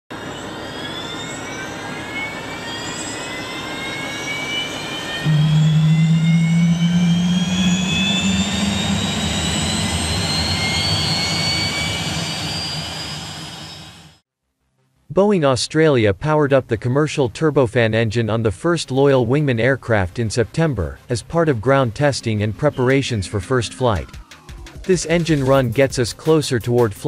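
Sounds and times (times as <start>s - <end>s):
turbofan engine whine: 0.1s - 14.2s, 21.3s - 25.8s
deep engine hum: 5.2s - 14.2s.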